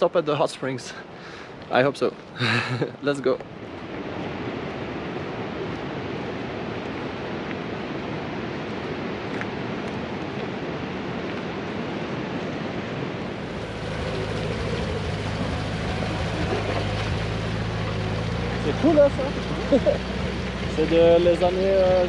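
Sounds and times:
steady rushing hiss: 13.3 - 22.0
truck engine droning: 13.3 - 22.0.

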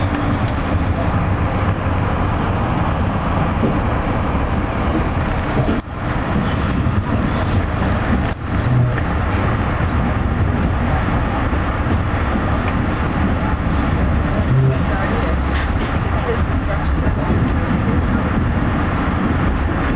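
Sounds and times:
train rumbling along track: 0.0 - 19.9.

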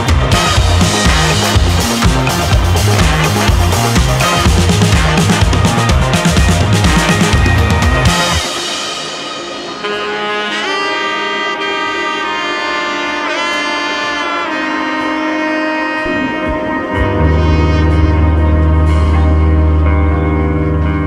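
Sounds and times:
sliding melody line: 0.0 - 20.0
deep bass note: 16.0 - 21.0.

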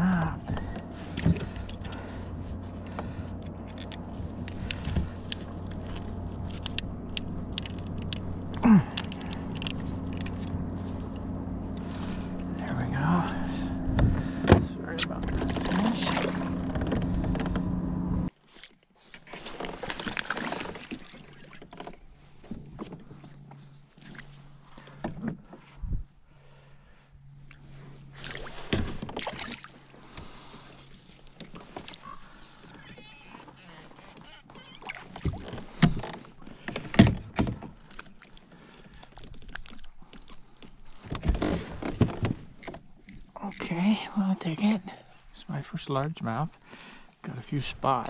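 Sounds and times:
steady low hum: 0.0 - 18.3
water splashing and lapping: 0.0 - 25.8, 27.4 - 45.3
fishing rod and reel clicks: 3.4 - 11.9, 32.3 - 35.2.

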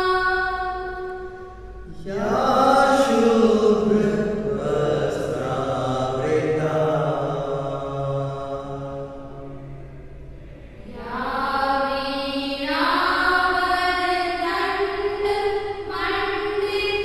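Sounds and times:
mantra chanting in long held notes: 0.0 - 12.5.

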